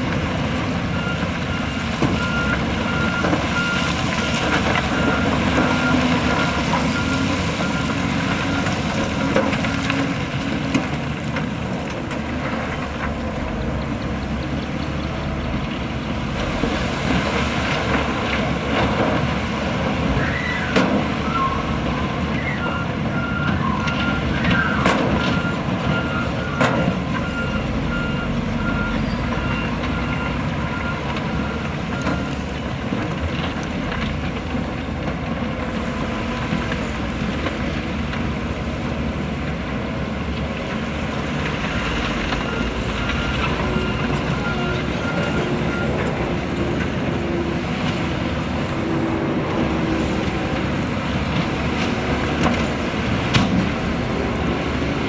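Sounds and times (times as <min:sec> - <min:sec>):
heavy machinery diesel engines: 0:00.0 - 0:55.0
reversing alarm beeping: 0:00.9 - 0:08.9, 0:21.2 - 0:32.6, 0:42.3 - 0:46.6.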